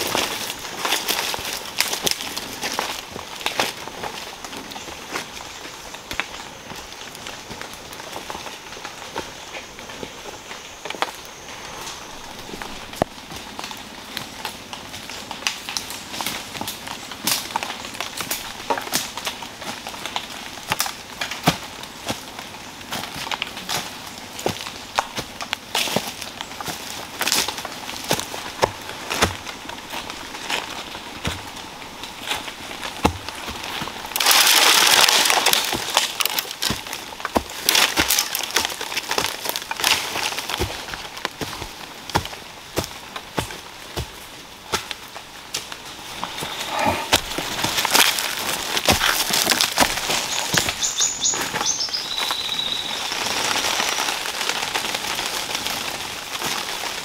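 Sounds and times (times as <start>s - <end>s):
footsteps crunching on dry leaves: 0.0s - 57.0s
twigs snapping: 11.8s - 57.0s.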